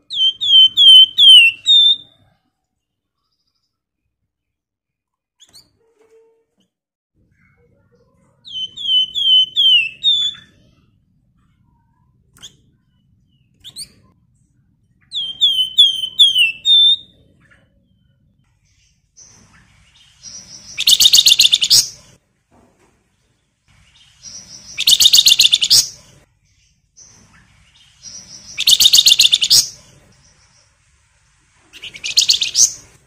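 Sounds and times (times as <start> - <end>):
bird whistling song: 0.0 - 2.1, 8.5 - 10.5, 15.0 - 17.2, 19.2 - 22.1, 23.9 - 26.0, 27.0 - 29.8, 31.7 - 33.0.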